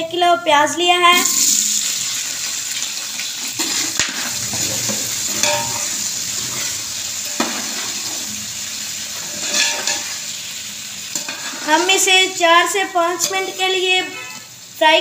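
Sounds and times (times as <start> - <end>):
onions sizzling in a pot: 1.0 - 15.0
metal spoon clinking against pot: 4.9 - 6.0.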